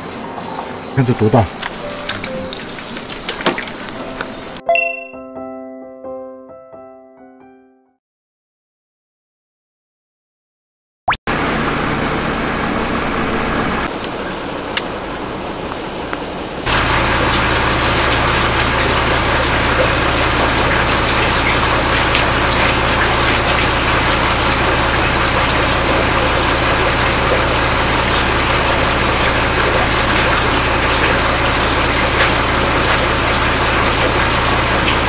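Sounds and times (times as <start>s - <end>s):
motor-driven machine humming: 11.3s - 14.2s, 16.7s - 35.0s.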